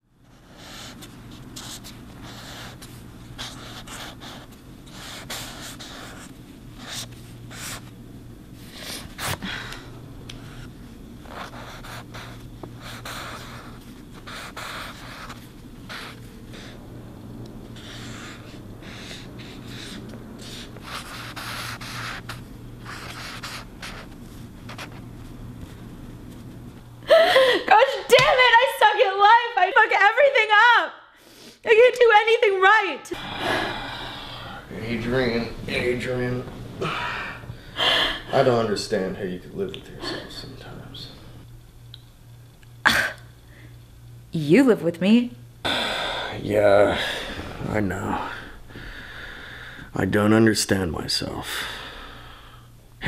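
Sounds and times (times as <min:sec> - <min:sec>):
steady low hum: 0:00.0 - 0:53.0
marker pen scratching on paper: 0:00.3 - 0:07.9, 0:10.4 - 0:16.8, 0:17.8 - 0:25.1.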